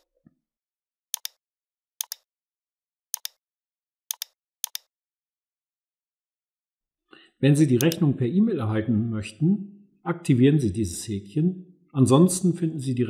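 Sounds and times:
computer mouse button clicks: 3.2 - 3.4, 4.1 - 4.9.

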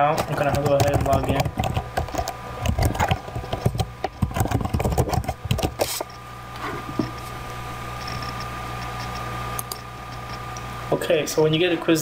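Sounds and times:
low hum: 0.0 - 11.9
keyboard keys clicking: 0.1 - 5.8.

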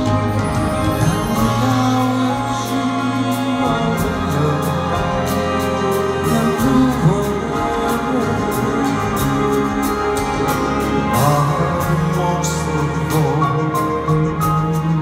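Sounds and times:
people singing: 0.0 - 15.0
piano playing sustained chords: 0.0 - 15.0.

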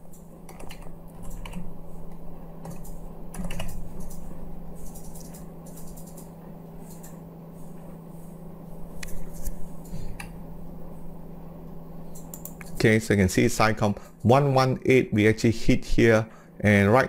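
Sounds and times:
keyboard typing clicks: 0.0 - 1.7, 2.6 - 7.2, 12.1 - 12.7
steady low hum: 0.0 - 17.0.

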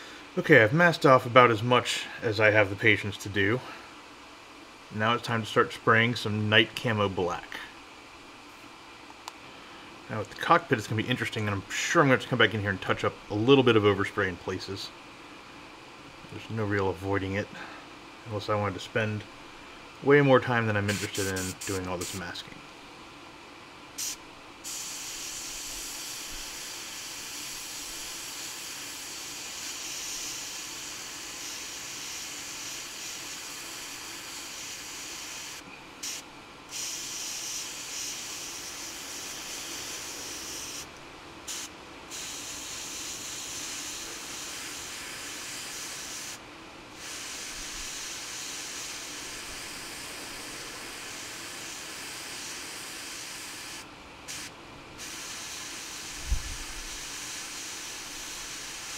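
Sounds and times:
airbrush spraying air hiss: 20.9 - 22.3, 24.0 - 46.4, 47.0 - 58.9.

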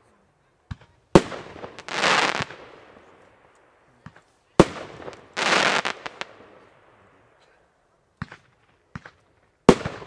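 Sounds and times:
firework stars crackling: 0.8 - 7.2.

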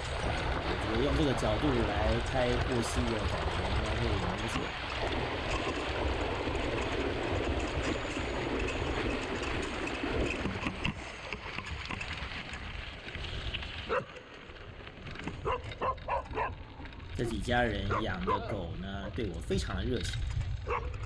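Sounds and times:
bike rattling clicks: 0.0 - 18.5
bike tyres on gravel and water: 0.0 - 21.0
dog barking: 15.4 - 16.6, 17.9 - 18.6, 20.7 - 21.0.

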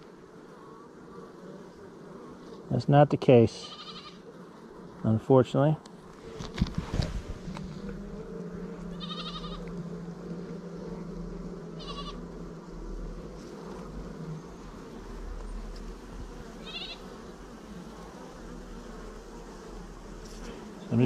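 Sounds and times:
bees buzzing: 0.0 - 21.0
wavering animal calls: 8.8 - 9.8, 11.8 - 12.2, 16.6 - 17.1.

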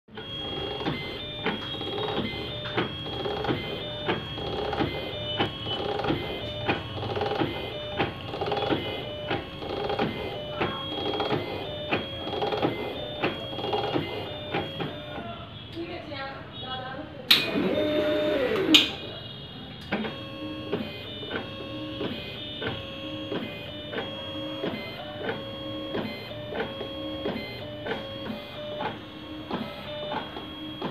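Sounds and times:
sharp machine clicks: 0.1 - 15.1, 17.3 - 19.0
dispensing pump whirring strokes: 17.3 - 19.1
machine high whine: 17.3 - 19.2.

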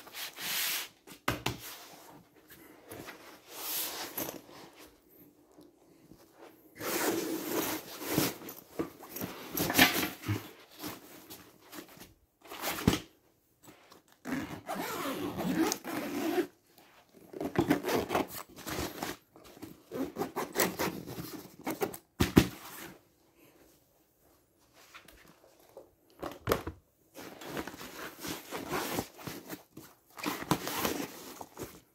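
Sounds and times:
zipper opening and closing: 6.8 - 8.5, 14.2 - 18.4.

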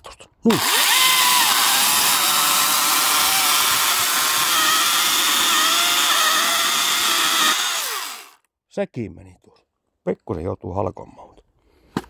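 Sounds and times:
electric chainsaw whine: 0.5 - 8.4
chain rasping through wood: 0.6 - 8.4.

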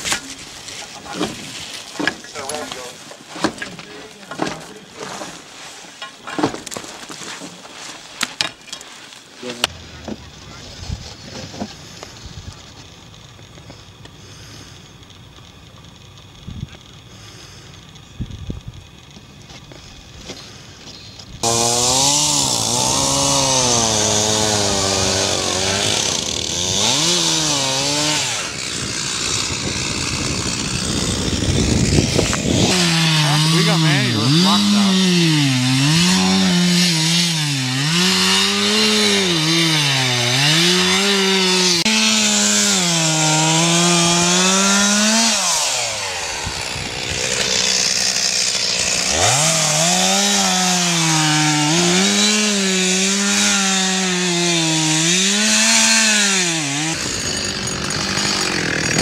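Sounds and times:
crunching and scraping ice: 0.0 - 13.8, 56.9 - 59.0
chainsaw cutting ice: 21.4 - 59.0.

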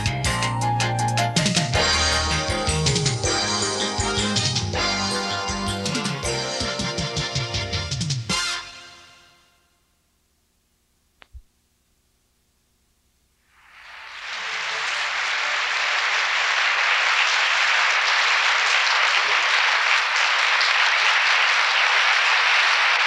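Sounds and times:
theatre audience applauding: 13.6 - 23.0.

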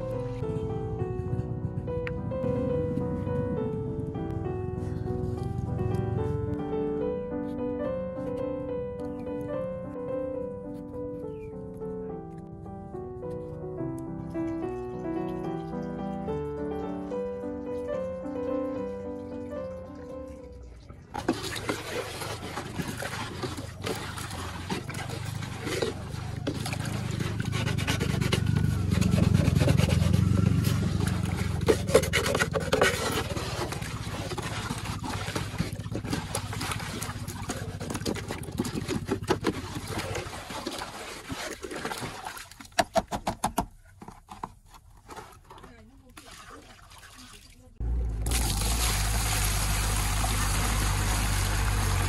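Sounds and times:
low rumble: 0.0 - 7.3
water sloshing in basin: 20.3 - 43.0, 44.0 - 52.0
bottle glugging underwater: 20.6 - 42.4.

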